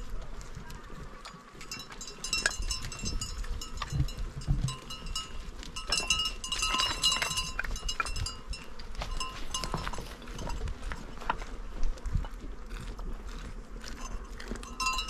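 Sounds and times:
animal bells jingling: 0:01.5 - 0:11.4, 0:13.8 - 0:15.0.

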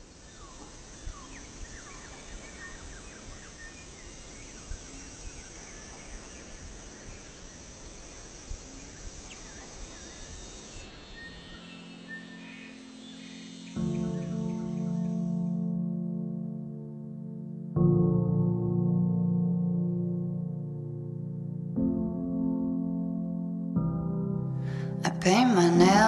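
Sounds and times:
insect drone: 0:00.0 - 0:26.0
bird chirps: 0:00.2 - 0:15.6.

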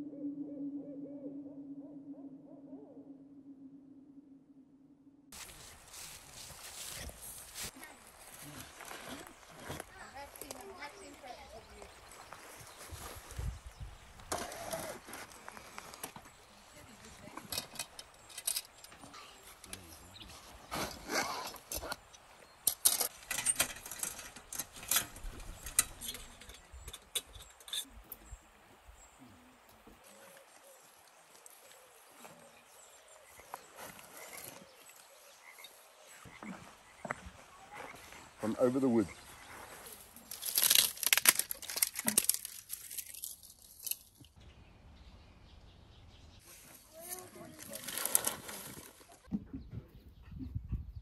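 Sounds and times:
metal panels clinking and scraping: 0:22.6 - 0:27.9
twigs snapping by hand: 0:40.2 - 0:44.4.

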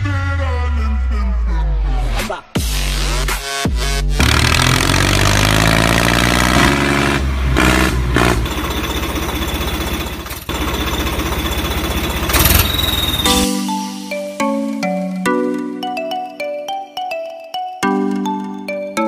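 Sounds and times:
tractor engine chugging: 0:06.6 - 0:13.5
tinkling mallet melody: 0:12.5 - 0:19.0.

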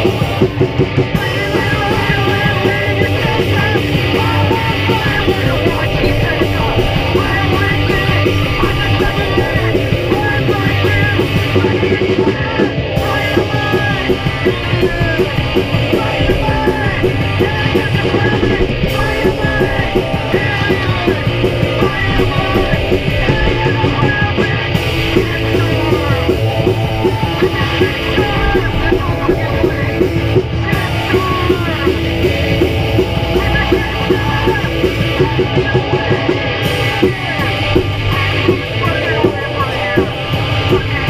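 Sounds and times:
rock band playing: 0:00.0 - 0:41.0
person yelling through megaphone: 0:01.2 - 0:32.0.

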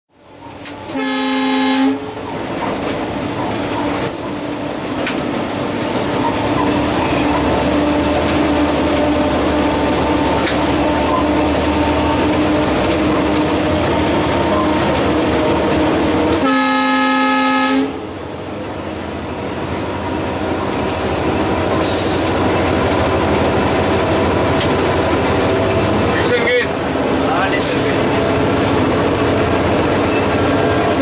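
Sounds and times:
locomotive horn blast: 0:00.9 - 0:02.2, 0:16.3 - 0:18.1.

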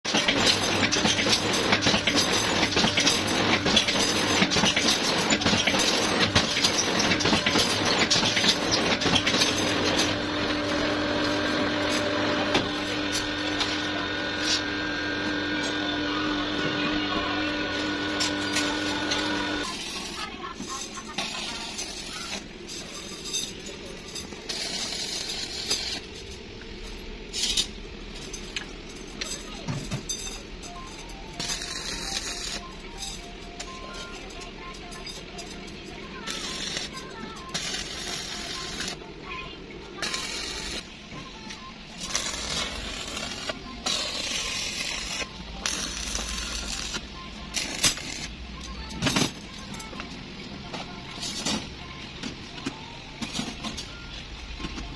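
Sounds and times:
metal machine clattering: 0:00.1 - 0:13.5
arc welding crackling and hissing: 0:00.1 - 0:29.6, 0:30.4 - 0:49.0
machine hum: 0:00.1 - 0:54.6.

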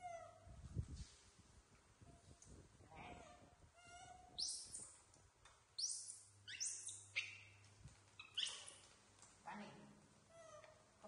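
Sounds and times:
baby monkeys squeaking: 0:03.8 - 0:04.9, 0:05.8 - 0:07.6, 0:08.2 - 0:08.8.

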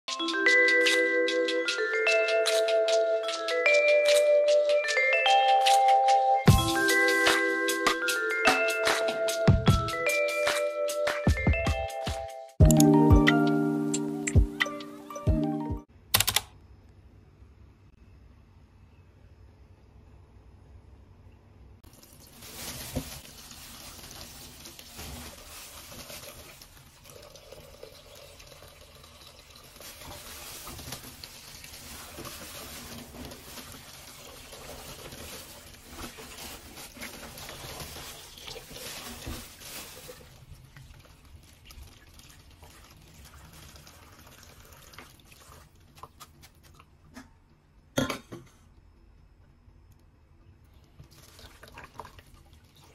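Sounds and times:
sharp clicks: 0:16.1 - 0:16.6
hands jostling mussels in bag: 0:22.1 - 0:26.6, 0:29.8 - 0:40.5.

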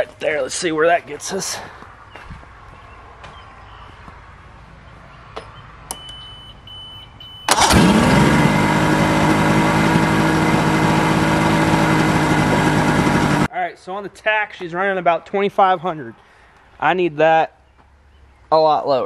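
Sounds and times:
outboard motor starting and idling: 0:07.5 - 0:13.5.

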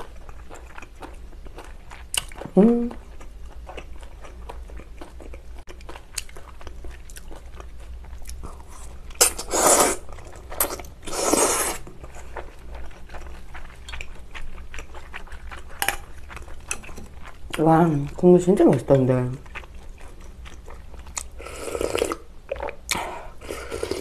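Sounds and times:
person chewing: 0:00.0 - 0:18.2, 0:19.2 - 0:24.0
loud slurps of noodles: 0:09.2 - 0:10.0, 0:11.1 - 0:11.8.

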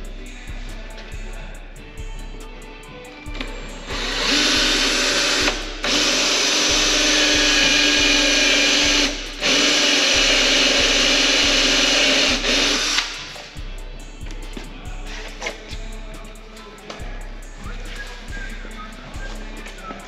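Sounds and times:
power drill drilling: 0:03.4 - 0:13.3.

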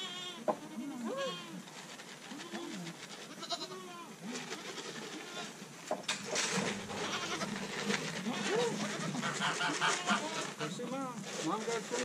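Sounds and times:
goats bleating: 0:02.3 - 0:05.6, 0:06.9 - 0:07.6, 0:08.2 - 0:10.8.

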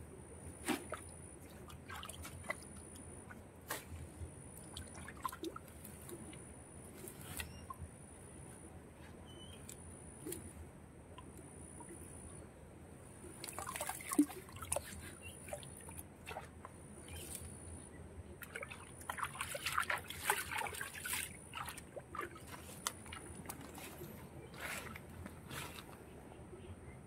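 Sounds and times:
hands splashing in muddy water: 0:18.4 - 0:25.9.

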